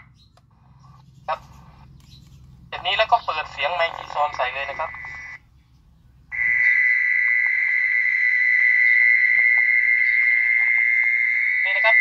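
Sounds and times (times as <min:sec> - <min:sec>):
mole cricket trill over loudspeaker: 0:06.4 - 0:12.0.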